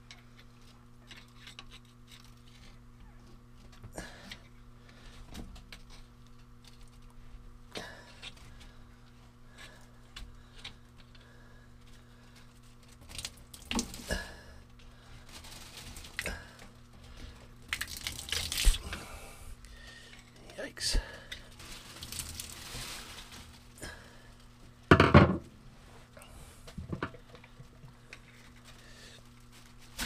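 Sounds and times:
small clicks and scrapes: 0.0s - 2.8s, 5.0s - 7.2s
steady low hum: 0.0s - 30.0s
plastic bag rustling: 12.3s - 19.1s, 21.0s - 24.8s, 28.3s - 30.0s
water splashing onto plastic bag: 13.0s - 14.2s, 17.7s - 19.0s, 21.5s - 23.7s.

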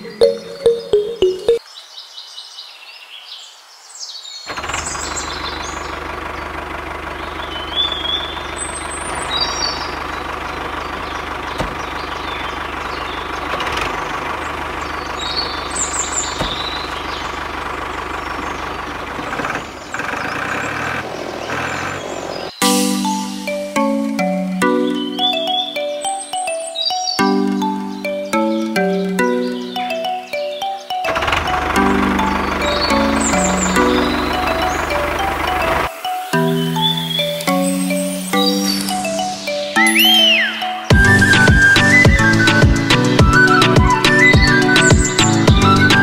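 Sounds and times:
birds chirping: 0.0s - 46.0s
tractor engine running: 4.5s - 26.2s, 27.3s - 36.0s, 40.9s - 46.0s.

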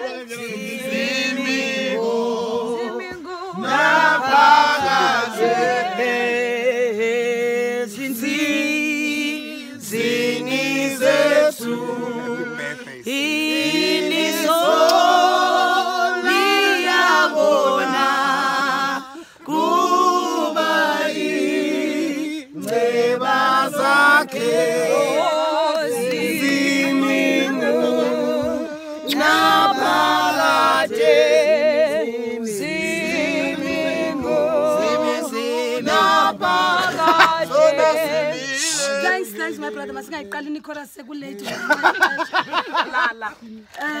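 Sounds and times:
group singing unaccompanied: 0.0s - 40.7s.

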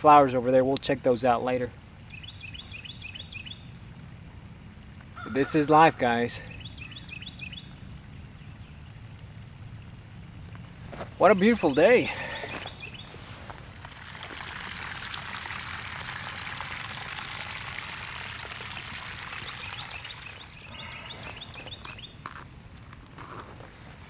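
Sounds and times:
water rushing: 11.8s - 21.6s.

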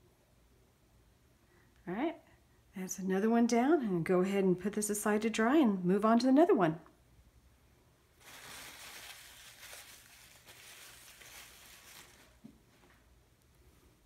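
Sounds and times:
soft rustling and crinkling: 8.2s - 14.0s.

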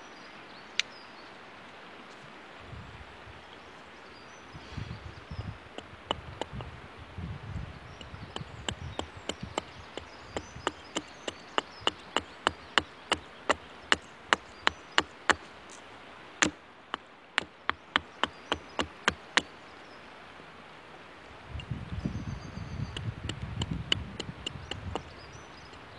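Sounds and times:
hatchet chopping wood: 5.8s - 6.7s, 8.0s - 15.6s, 16.4s - 19.5s, 22.9s - 25.2s.

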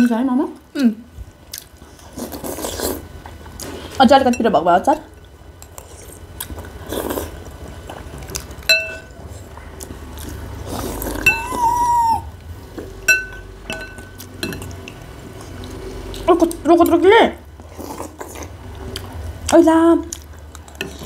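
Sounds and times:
soft eating noises: 0.0s - 21.0s
cutlery clinking on ceramic bowls: 8.7s - 9.1s, 13.0s - 15.0s
high-pitched tone: 11.2s - 12.3s.

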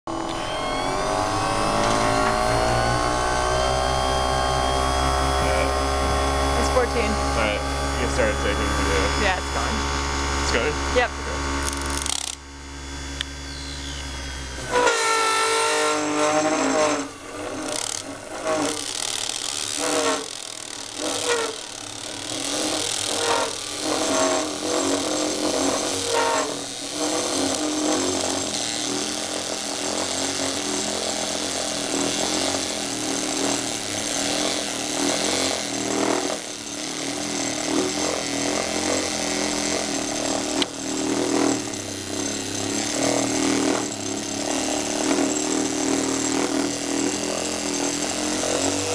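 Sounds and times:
low hum: 0.1s - 14.9s
lathe cutting metal: 0.1s - 48.9s.

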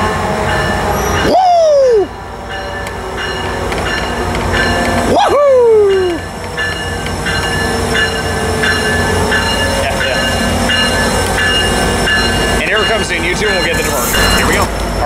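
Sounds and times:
locomotive bell ringing: 0.0s - 15.0s
loud squeal sliding in pitch: 13.4s - 15.0s.

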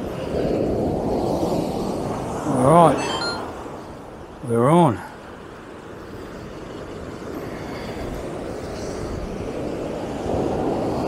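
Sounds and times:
wind: 0.0s - 11.0s.

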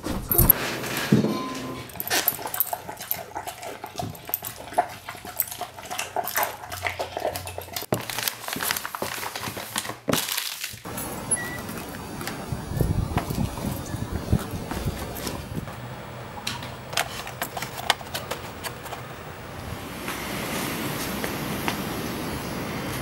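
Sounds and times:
dog eating from bowl: 1.5s - 7.9s.

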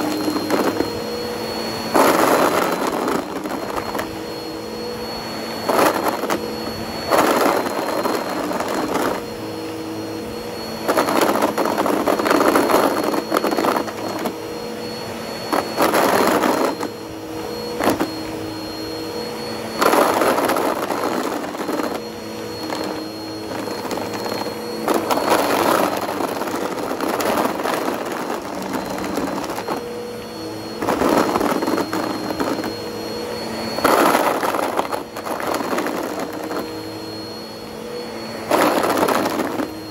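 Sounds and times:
upright vacuum running: 0.0s - 39.9s.

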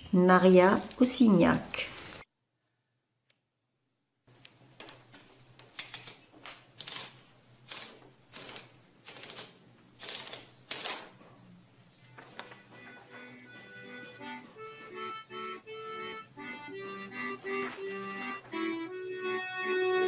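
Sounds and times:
paper rustling: 4.4s - 11.3s, 12.1s - 13.2s, 17.5s - 18.6s
typewriter clicks: 4.8s - 11.2s
typewriter platen ratcheting: 5.6s - 11.2s.

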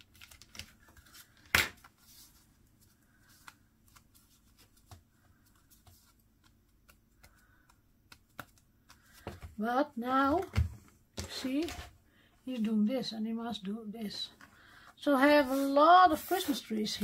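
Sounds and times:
soft paper rustles: 0.0s - 9.6s, 14.0s - 17.0s.

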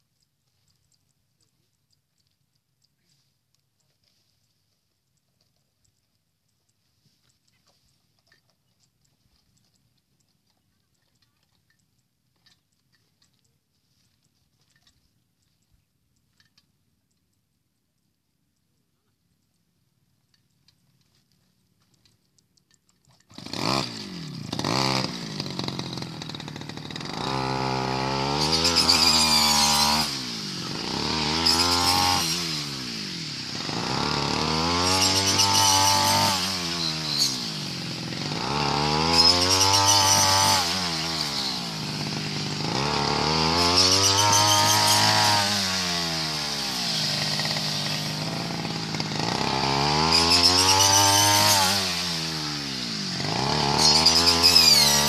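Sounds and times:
small petrol engine revving: 23.3s - 55.0s.

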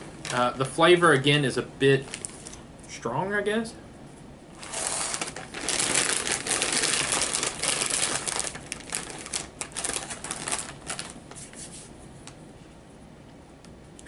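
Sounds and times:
plastic bag crinkling: 0.2s - 0.7s, 2.0s - 2.6s, 4.6s - 11.7s.

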